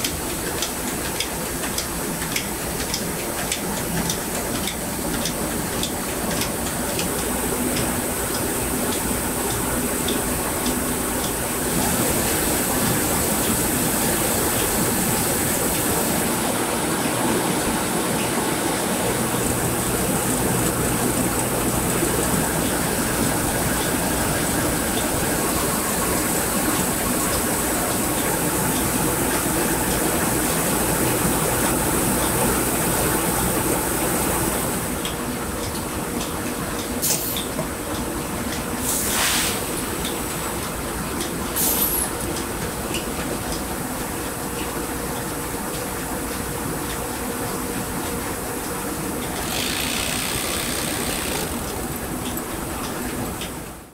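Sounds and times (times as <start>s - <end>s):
milling machinery running: 0.0s - 37.1s, 39.7s - 53.9s
short hissing sounds: 38.9s - 39.7s.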